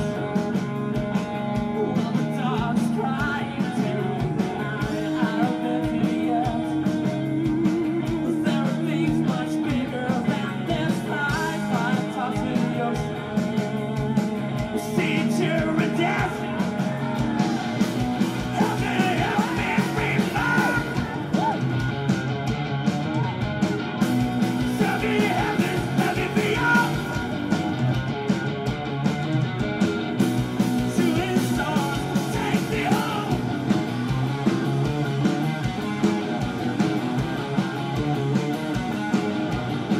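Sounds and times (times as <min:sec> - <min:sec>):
rock band playing live: 0:00.0 - 0:39.9
singer's vocal phrases: 0:01.6 - 0:13.9, 0:14.7 - 0:17.4, 0:18.4 - 0:21.6, 0:24.6 - 0:27.4, 0:30.8 - 0:33.6.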